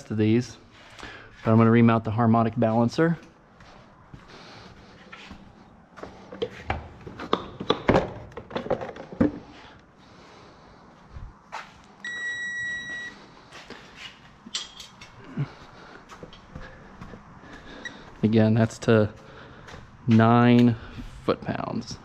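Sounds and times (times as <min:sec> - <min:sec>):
electronic beep: 0:12.0 - 0:13.2
metal tools clinking: 0:14.5 - 0:15.1.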